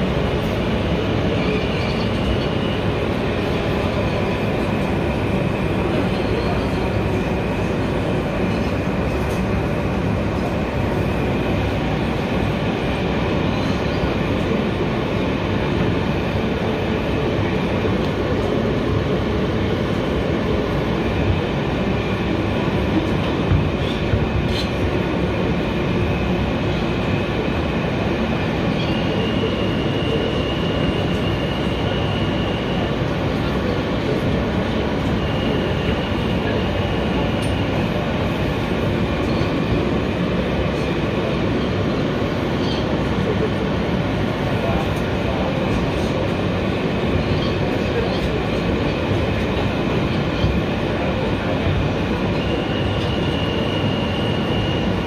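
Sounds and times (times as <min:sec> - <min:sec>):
high train whine: 0:00.0 - 0:55.0
train wheels rumbling on rail: 0:00.0 - 0:55.0.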